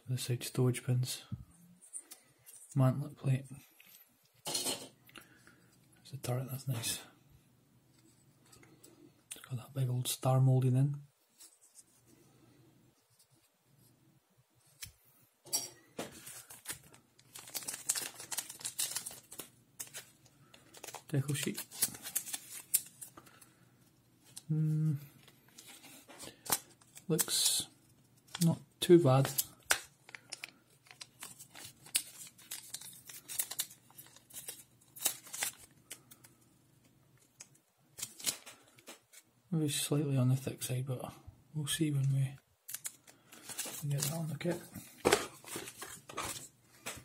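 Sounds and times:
plastic parts rustling: 0:16.0 - 0:23.5, 0:25.1 - 0:36.4, 0:42.7 - 0:47.0.

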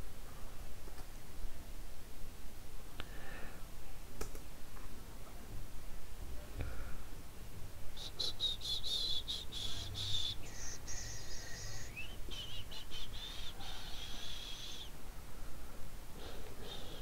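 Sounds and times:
rising whistle: 0:08.0 - 0:14.9.

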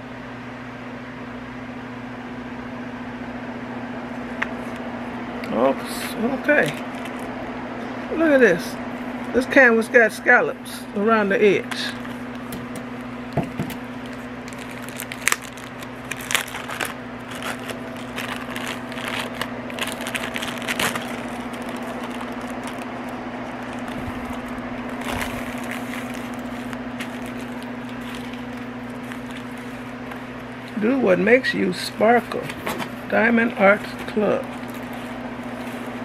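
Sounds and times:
steady low hum: 0:00.0 - 0:36.0
packaging crackling and rustling: 0:06.4 - 0:07.3, 0:11.6 - 0:30.8, 0:33.8 - 0:36.0.

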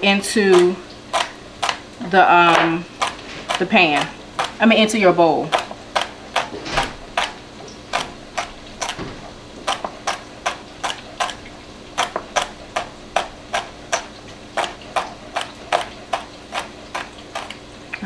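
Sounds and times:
knife chopping celery on board: 0:02.4 - 0:04.6, 0:05.4 - 0:09.0, 0:09.6 - 0:11.4, 0:12.0 - 0:17.6.

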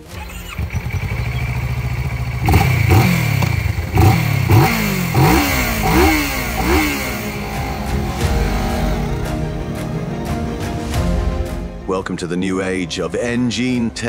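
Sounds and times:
motorcycle engine idling: 0:00.0 - 0:09.5
motorcycle engine revving: 0:00.0 - 0:09.9.

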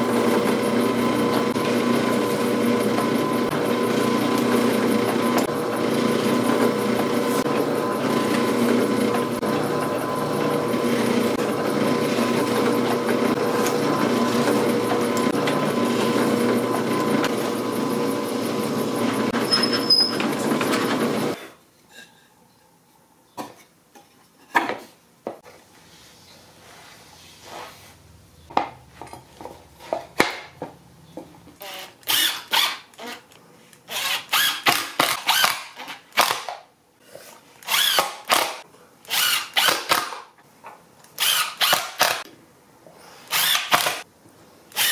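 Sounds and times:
drill press boring into wood: 0:00.0 - 0:21.4, 0:33.9 - 0:36.5, 0:37.6 - 0:40.1, 0:41.2 - 0:42.2, 0:43.3 - 0:44.0
cordless driver driving screws: 0:31.6 - 0:36.5, 0:37.6 - 0:40.2.

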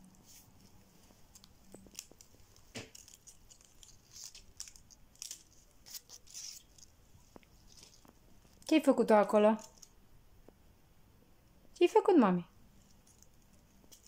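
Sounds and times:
paper rustling and clicking: 0:00.0 - 0:08.8, 0:12.8 - 0:14.0.

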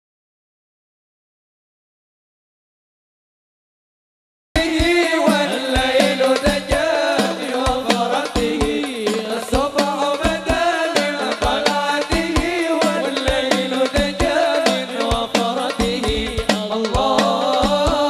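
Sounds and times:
rhythmic hand-drum strokes: 0:04.6 - 0:18.0.

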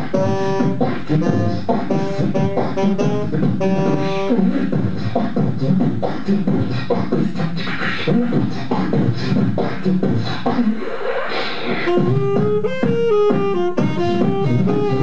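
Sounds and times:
saxophone note: 0:00.0 - 0:04.4, 0:11.9 - 0:15.0
beatboxing into a microphone: 0:00.0 - 0:15.0.

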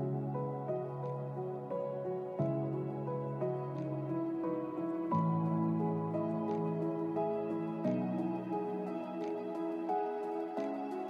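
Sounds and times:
soft new-age music: 0:00.0 - 0:11.0.

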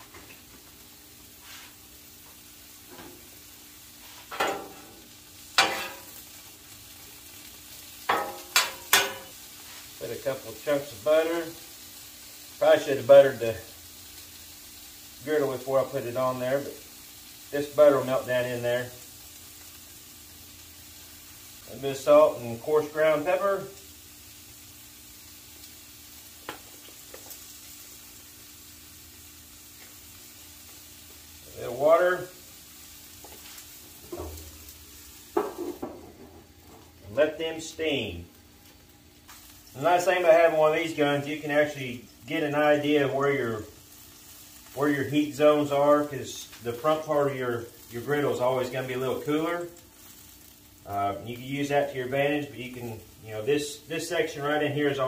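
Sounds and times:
faint sizzle: 0:00.0 - 0:55.0
metal spatula scraping griddle: 0:04.0 - 0:05.0, 0:05.6 - 0:06.2.

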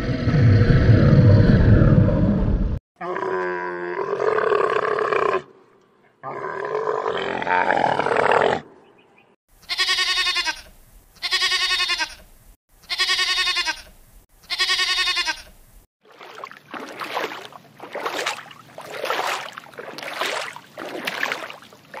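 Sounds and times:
animal bleating: 0:09.6 - 0:12.3, 0:12.9 - 0:13.9, 0:14.5 - 0:15.5.

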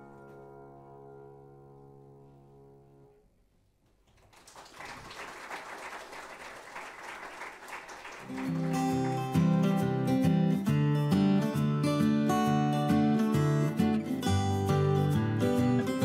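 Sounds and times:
audience applause: 0:04.1 - 0:09.7
strummed acoustic guitar: 0:08.3 - 0:16.0.

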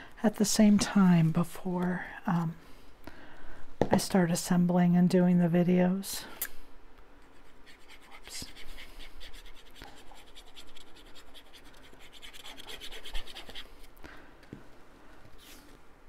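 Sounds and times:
glue bottle tip scratching paper: 0:07.5 - 0:13.6.

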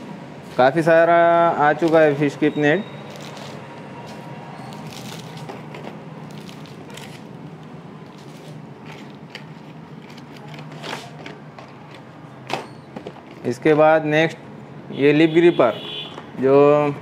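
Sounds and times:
plastic packaging crinkling: 0:04.7 - 0:12.0.

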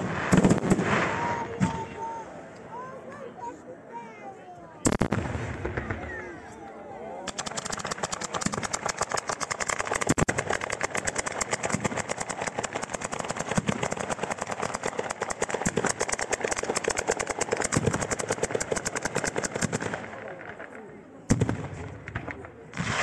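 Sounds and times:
heavy firework bangs: 0:00.0 - 0:01.9, 0:04.8 - 0:06.2, 0:07.3 - 0:20.6, 0:21.3 - 0:23.0
firecrackers crackling: 0:00.0 - 0:02.2, 0:04.8 - 0:06.4, 0:07.3 - 0:23.0.

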